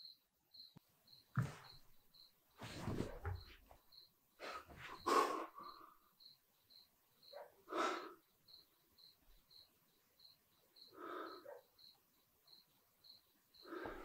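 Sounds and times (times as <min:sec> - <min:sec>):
cricket chirping: 0:00.0 - 0:14.0
loud breaths: 0:04.4 - 0:06.1, 0:07.7 - 0:08.2, 0:10.9 - 0:11.6, 0:13.6 - 0:14.0.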